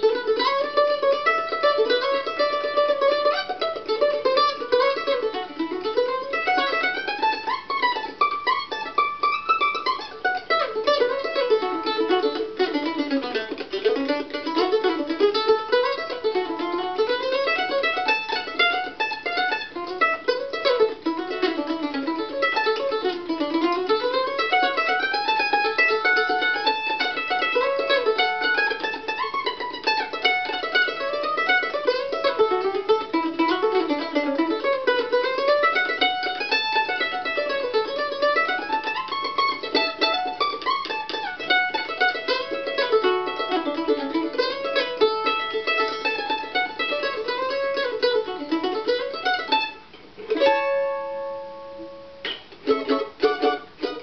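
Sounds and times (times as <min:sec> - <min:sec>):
mandolin picked runs: 0:00.0 - 0:54.0
mandolin strum ringing: 0:00.0 - 0:54.0.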